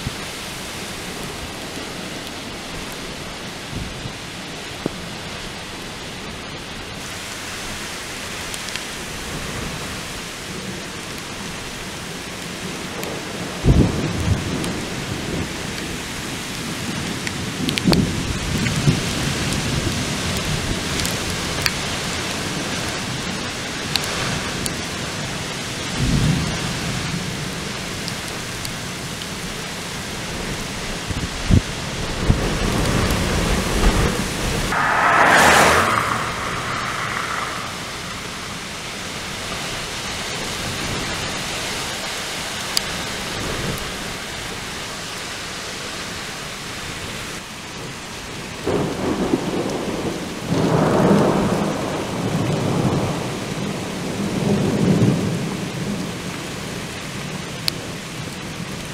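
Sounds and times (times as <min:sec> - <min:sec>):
wind rushing through trees: 0:29.3 - 0:58.9
wind buffeting microphone: 0:31.0 - 0:41.3.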